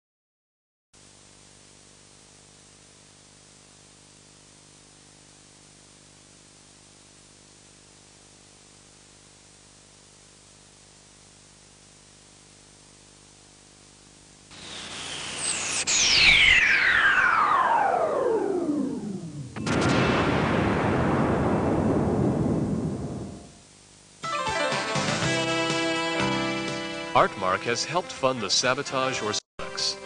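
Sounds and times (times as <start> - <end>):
tape hiss: 1.0 - 30.0
low hum: 14.5 - 24.0
electronic music with gliding tones: 14.6 - 19.6.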